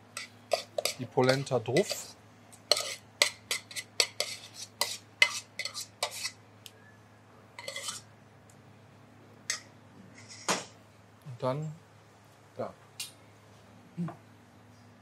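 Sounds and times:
metal spoon scraping saucepan: 0:00.2 - 0:02.1, 0:02.7 - 0:06.4, 0:07.6 - 0:08.1.

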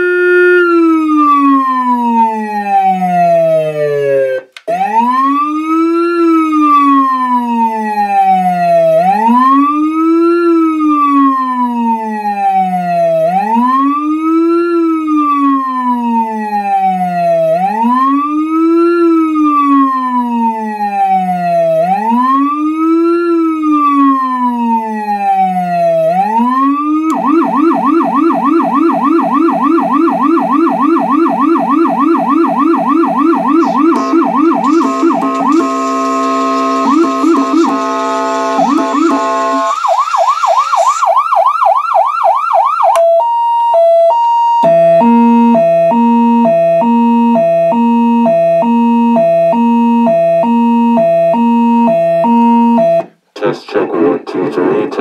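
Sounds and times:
electronic siren wail and yelp: 0:00.0 - 0:53.1.

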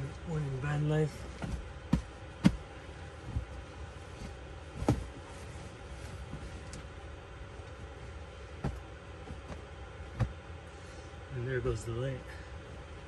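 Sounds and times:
low hum: 0:00.0 - 0:13.0
thumps and rustling of bedding: 0:01.2 - 0:06.9, 0:08.5 - 0:10.5.

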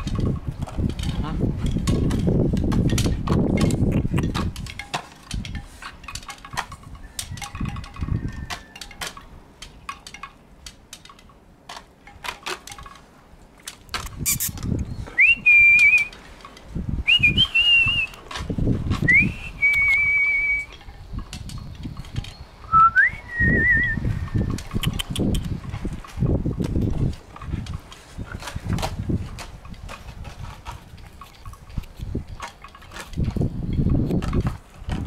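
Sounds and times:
light clicks and rustles: 0:00.0 - 0:15.2, 0:15.8 - 0:19.1, 0:24.2 - 0:35.0
whistled notes: 0:14.3 - 0:16.2, 0:17.0 - 0:18.2, 0:19.0 - 0:20.8, 0:22.6 - 0:24.2.

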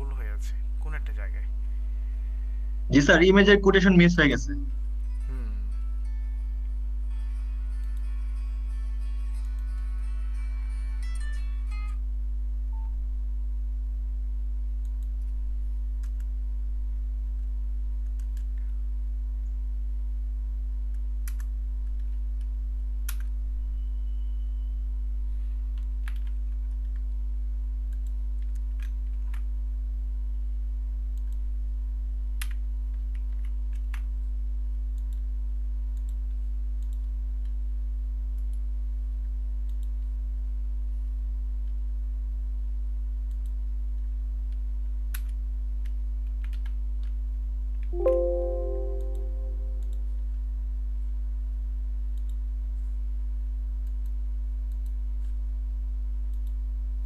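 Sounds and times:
steady low hum: 0:00.0 - 0:07.2, 0:12.0 - 0:46.2
computer keystrokes and clicks: 0:35.9 - 0:37.6, 0:39.6 - 0:40.1, 0:46.3 - 0:46.8, 0:48.0 - 0:50.0.

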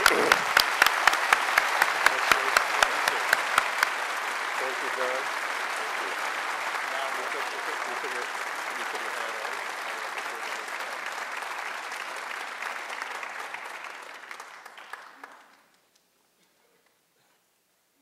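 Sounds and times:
audience applauding: 0:00.0 - 0:15.9.

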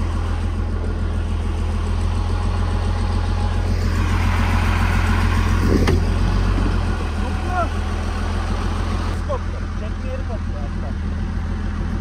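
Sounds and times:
grader diesel engine running: 0:00.0 - 0:12.0.

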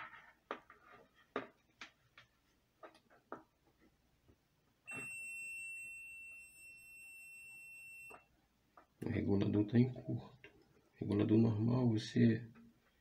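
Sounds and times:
multimeter continuity beep: 0:04.9 - 0:08.3.

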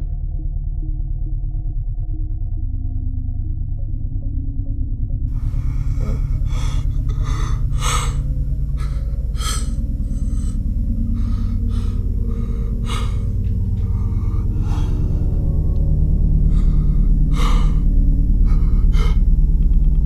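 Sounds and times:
low droning score: 0:00.0 - 0:20.0
man gasping and breathing heavily: 0:05.4 - 0:19.3.

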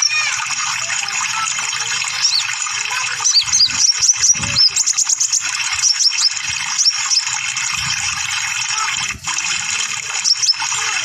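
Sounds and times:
sunbird chirping song: 0:02.2 - 0:02.6, 0:03.2 - 0:07.3, 0:10.1 - 0:11.0.

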